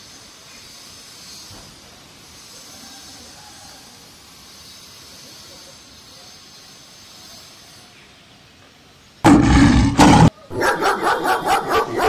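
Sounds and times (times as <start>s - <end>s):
tiger roar: 9.3s - 12.0s
dog barking: 10.5s - 12.0s.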